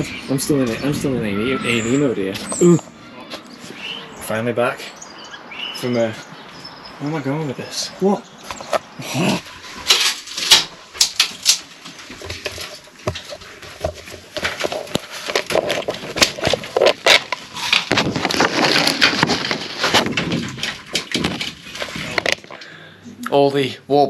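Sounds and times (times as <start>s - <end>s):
rustling: 7.7s - 23.0s.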